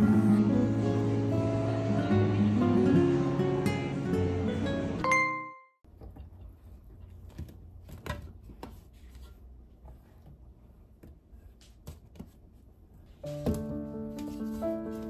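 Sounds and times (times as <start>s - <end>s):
tune note ringing: 5.0s - 5.8s.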